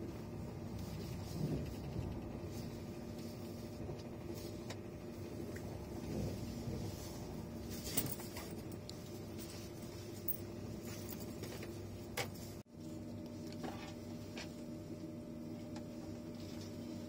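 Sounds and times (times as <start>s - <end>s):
train cabin rumble: 0.0s - 9.6s
steady hum: 0.0s - 17.0s.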